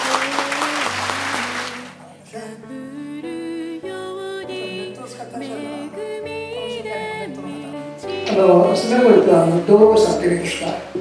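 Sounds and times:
audience clapping: 0.0 - 2.0
music: 0.0 - 11.0.

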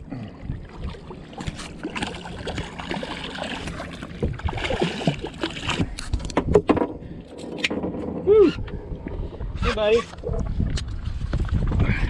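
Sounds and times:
water splashing and gurgling: 0.0 - 7.4.

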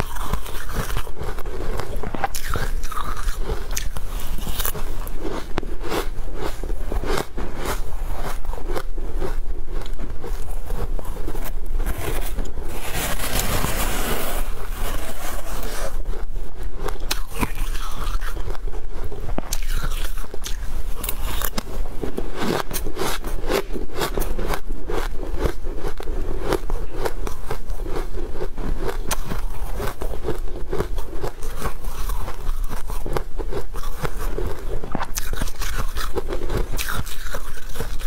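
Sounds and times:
metal spoon scraping ice: 0.0 - 5.2, 10.3 - 16.0, 30.8 - 38.0
crunching shaved ice: 0.0 - 15.9, 16.8 - 38.0.

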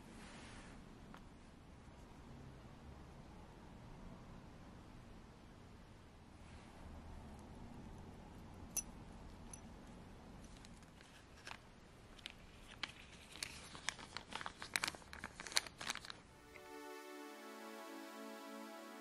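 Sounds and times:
hands crinkling and rubbing: 10.4 - 16.3.

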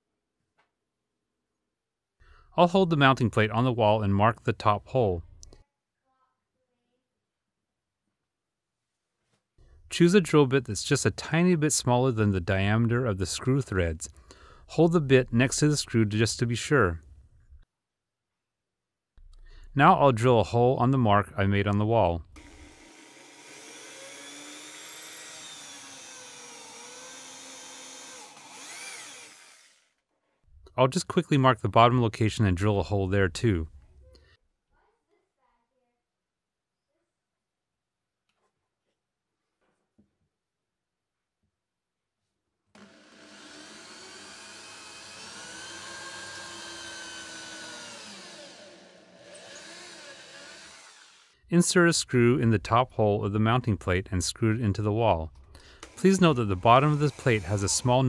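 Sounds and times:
electric drill boring into drywall: 22.4 - 30.0, 42.7 - 51.4, 55.7 - 58.0.

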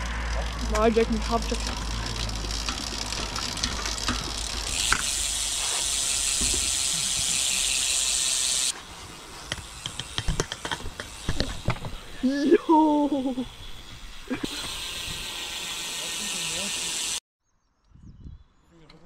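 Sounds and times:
bicycle freewheel ratchet clicking: 0.0 - 8.8, 9.4 - 11.9, 14.5 - 17.2
steady high hiss: 4.8 - 17.2.

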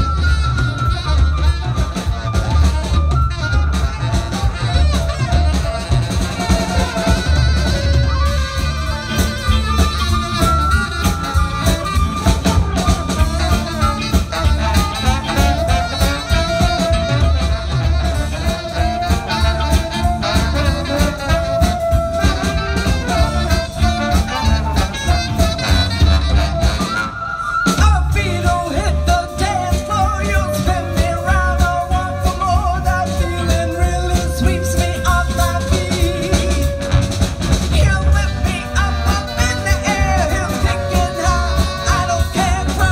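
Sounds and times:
drum kit: 0.0 - 42.9
electric guitar: 0.0 - 42.9
saxophone: 0.0 - 42.9
trombone: 0.0 - 42.9
trumpet: 0.0 - 42.9.

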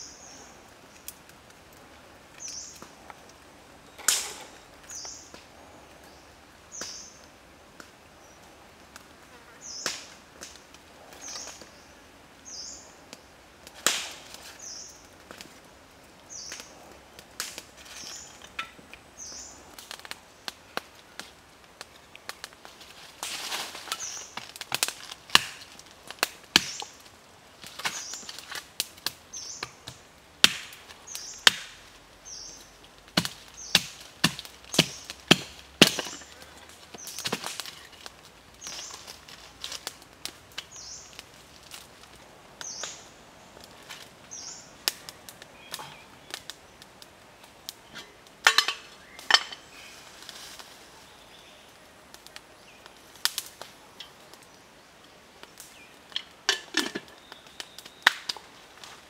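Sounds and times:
dry wood snapping: 4.0 - 5.5, 9.8 - 11.8, 13.1 - 15.7, 16.3 - 50.8, 52.1 - 54.6, 55.4 - 59.0.

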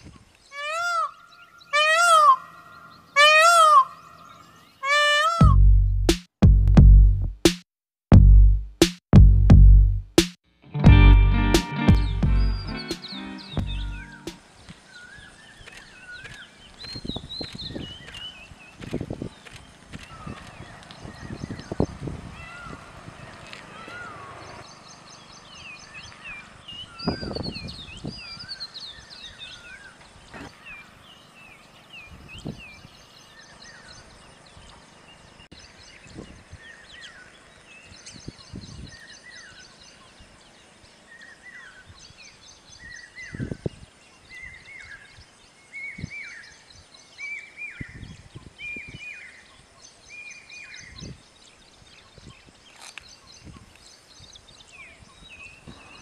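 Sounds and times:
songbirds chirping: 0.0 - 6.1, 10.8 - 56.0
low thumps: 5.4 - 7.4, 8.1 - 10.2, 10.8 - 14.4.

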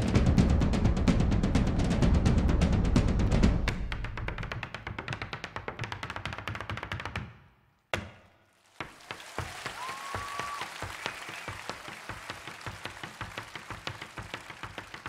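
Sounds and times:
drum beats: 0.0 - 5.4, 8.8 - 15.0
audience applause: 8.7 - 15.0
hard-shoe dance steps: 8.8 - 15.0
whistle from crowd: 9.4 - 12.6.

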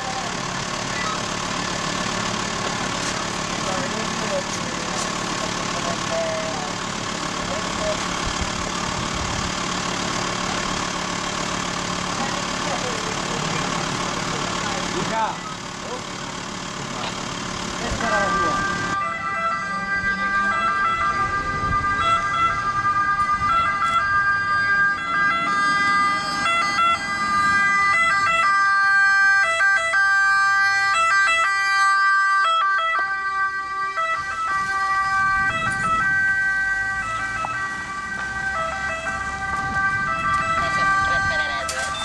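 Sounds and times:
ambulance two-tone siren: 3.6 - 8.0, 17.8 - 42.0.

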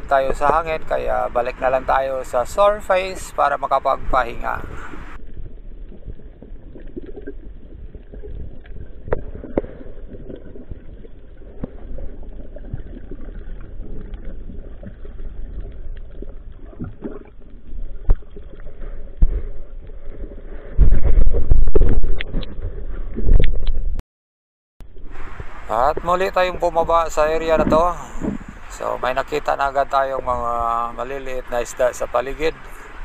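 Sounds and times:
underwater rumble: 0.0 - 24.0, 24.8 - 31.9
bubbling: 4.1 - 23.9.

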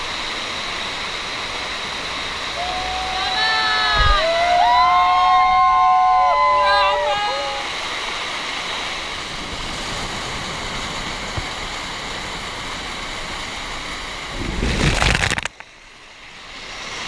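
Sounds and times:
waterfall rushing over rocks: 0.0 - 17.0
loud burst of noise: 14.4 - 15.6.

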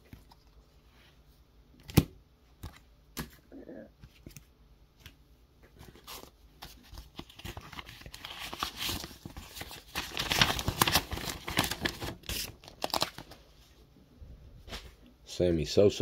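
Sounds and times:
paper crinkling and rustling: 4.0 - 13.4
envelope being torn open: 6.0 - 13.4.

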